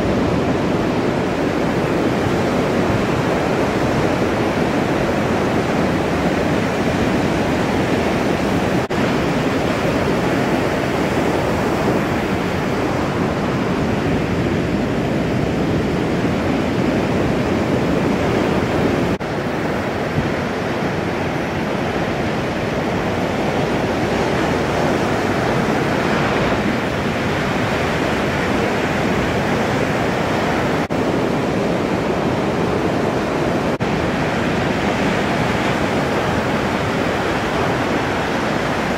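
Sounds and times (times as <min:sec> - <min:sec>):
surf breaking on a reef: 0:00.0 - 0:38.9.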